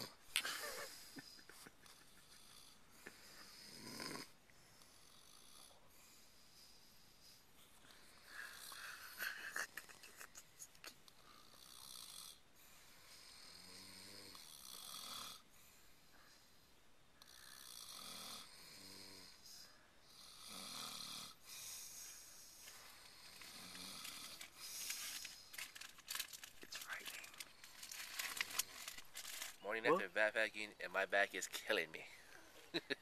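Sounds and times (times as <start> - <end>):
people snoring: 0.0 - 6.7, 8.0 - 9.7, 11.2 - 15.5, 17.2 - 25.0.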